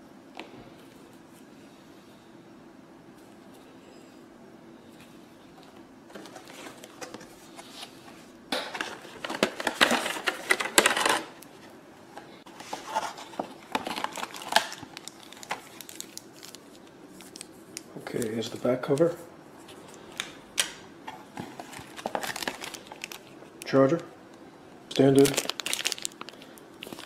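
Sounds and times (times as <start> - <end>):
plastic packaging crinkling: 8.7 - 11.4, 12.5 - 19.2, 21.3 - 23.9, 24.9 - 27.0.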